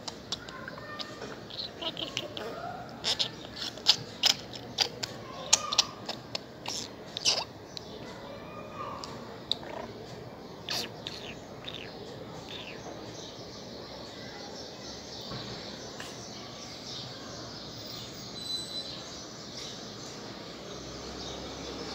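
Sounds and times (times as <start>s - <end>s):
budgerigar chirping and trilling: 0.1s - 7.9s, 10.6s - 12.9s.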